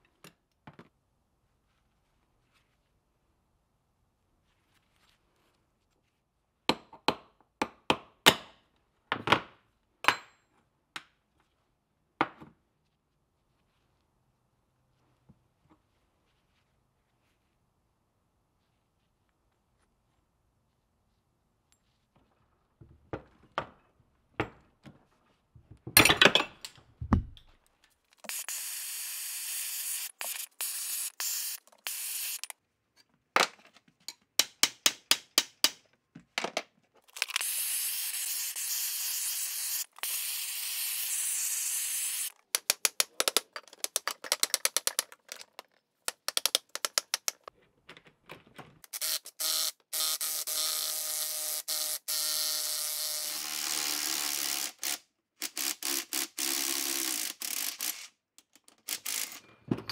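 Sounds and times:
aerosol spray can hissing: 0:28.2 - 0:32.5
sharp rapid clicks: 0:42.6 - 0:47.5.

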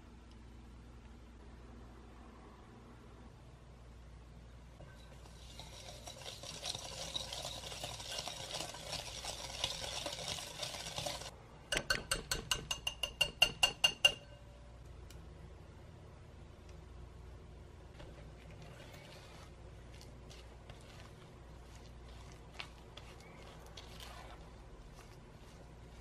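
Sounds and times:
whisk scraping swish in bowl: 0:04.8 - 0:11.3, 0:18.0 - 0:26.0
metal whisk tapping glass: 0:11.7 - 0:14.4.

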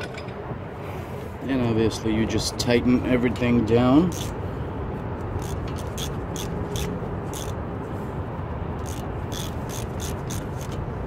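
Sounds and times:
ratchet wrench clicking: 0:04.1 - 0:04.4, 0:05.4 - 0:07.6, 0:08.8 - 0:10.8.

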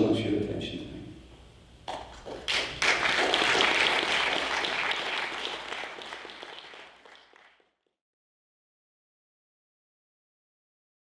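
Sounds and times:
audience applauding: 0:02.1 - 0:07.8.

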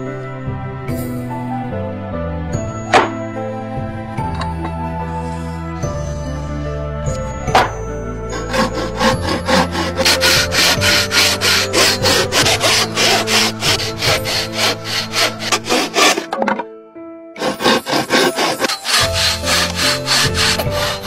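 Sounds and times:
hand saw cutting wood: 0:08.3 - 0:16.6, 0:17.4 - 0:21.0.

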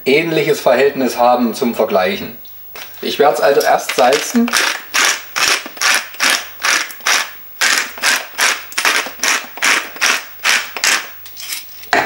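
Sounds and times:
salt mill grinding: 0:03.8 - 0:11.2.

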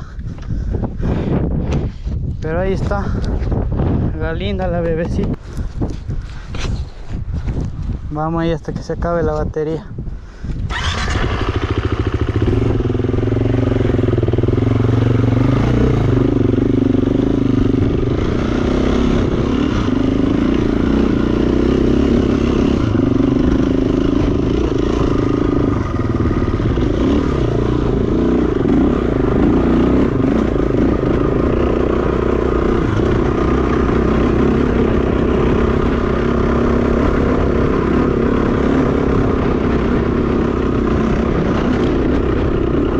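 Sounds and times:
dirt bike engine running: 0:10.6 - 0:42.9.

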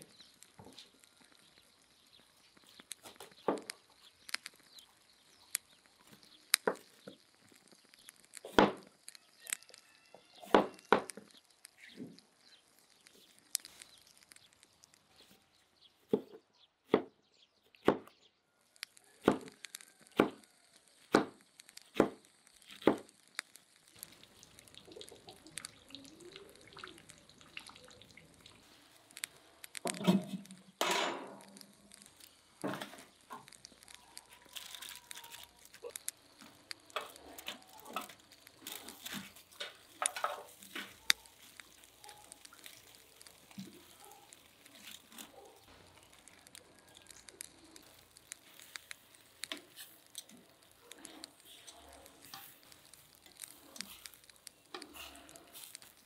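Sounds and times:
metal grill grate set down: 0:29.9 - 0:31.4.

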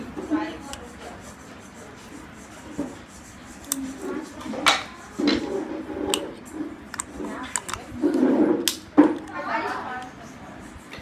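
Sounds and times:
metal padlock parts rubbing and clicking: 0:05.4 - 0:10.1.

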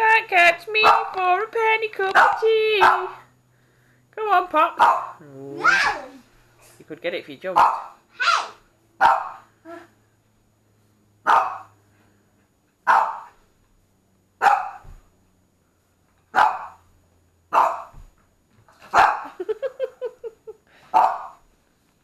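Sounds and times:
dog barking: 0:00.8 - 0:01.2, 0:02.2 - 0:03.3, 0:04.8 - 0:06.0, 0:07.6 - 0:09.5, 0:11.2 - 0:11.8, 0:12.9 - 0:13.4, 0:14.4 - 0:14.9, 0:16.3 - 0:16.8, 0:17.5 - 0:18.0, 0:18.9 - 0:19.4, 0:20.9 - 0:21.4
dog yelping: 0:04.8 - 0:06.2, 0:07.6 - 0:09.4, 0:11.3 - 0:11.7, 0:12.9 - 0:13.3, 0:14.4 - 0:14.8, 0:16.4 - 0:16.8, 0:19.0 - 0:19.4.

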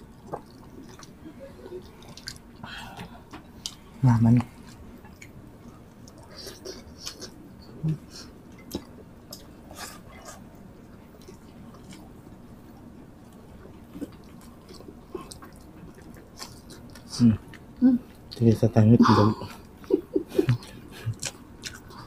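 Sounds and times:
chewing and lip smacks: 0:00.1 - 0:03.8, 0:08.5 - 0:18.4, 0:20.5 - 0:22.0.

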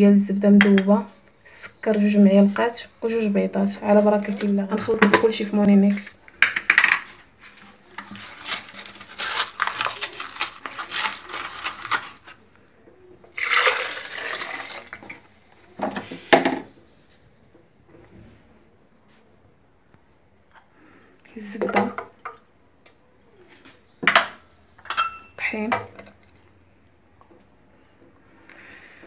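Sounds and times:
milk pouring into plastic jar: 0:13.3 - 0:15.3.

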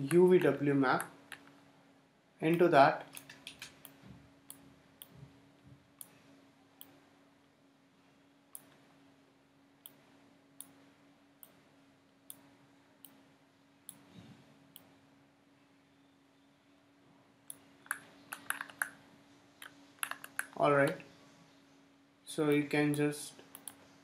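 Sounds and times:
low electrical hum: 0:00.0 - 0:24.0
computer mouse clicks: 0:17.5 - 0:19.0, 0:19.6 - 0:21.0, 0:22.5 - 0:23.8.

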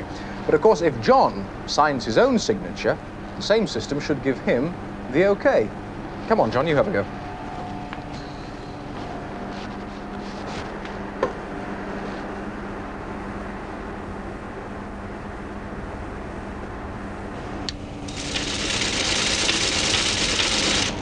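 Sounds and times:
steady low hum: 0:00.0 - 0:21.0
teleprinter clattering: 0:18.1 - 0:21.0.

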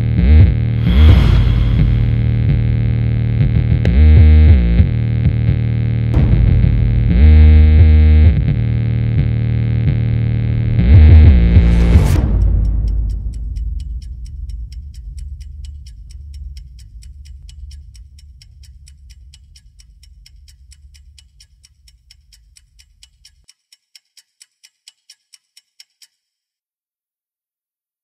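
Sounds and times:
clock-like ticking: 0:00.2 - 0:02.6, 0:10.7 - 0:26.4
low drone: 0:00.6 - 0:05.1, 0:05.8 - 0:21.2.

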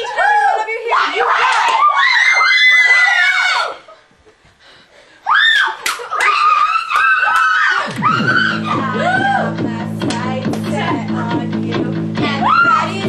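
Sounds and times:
girls screaming: 0:00.0 - 0:04.0, 0:05.2 - 0:09.6, 0:12.3 - 0:13.0
guitar music: 0:08.2 - 0:13.0.

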